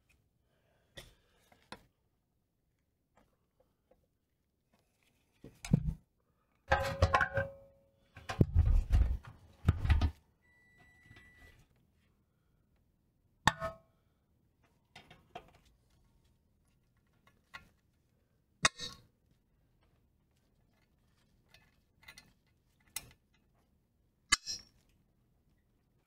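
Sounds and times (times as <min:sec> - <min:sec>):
faint short tone: 0:10.4 - 0:11.6.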